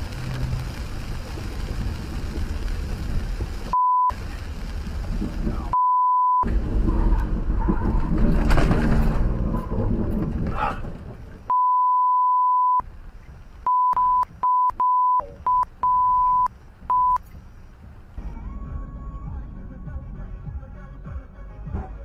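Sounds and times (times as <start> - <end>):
car driving on wet road: 0.0 - 5.8, 6.4 - 11.5
high-pitched censor bleep: 3.8 - 4.1, 5.8 - 6.4, 11.5 - 12.8, 13.7 - 17.2.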